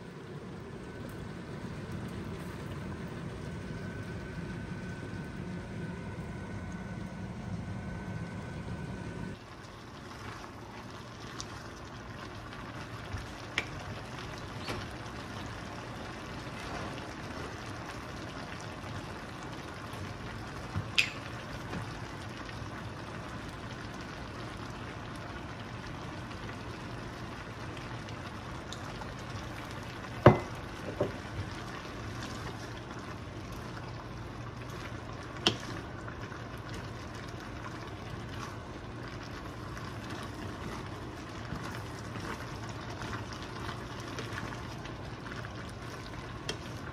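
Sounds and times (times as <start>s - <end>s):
wooden spatula stirring: 36.7s - 46.9s.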